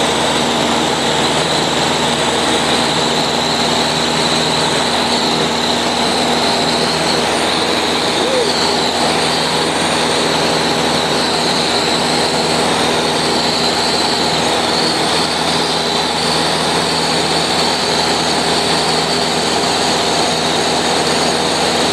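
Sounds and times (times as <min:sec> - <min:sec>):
airplane engine and propeller droning: 0:00.0 - 0:21.9.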